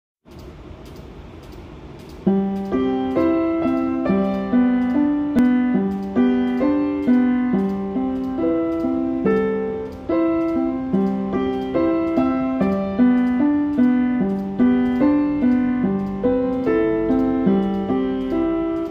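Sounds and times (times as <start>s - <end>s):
slow piano melody on keyboard: 2.2s - 18.9s.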